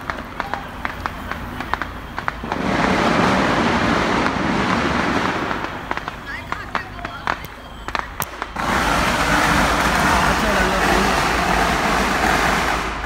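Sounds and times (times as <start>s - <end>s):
firecracker pops: 0.0s - 13.0s
road traffic: 0.0s - 13.0s
rushing noise: 7.8s - 13.0s.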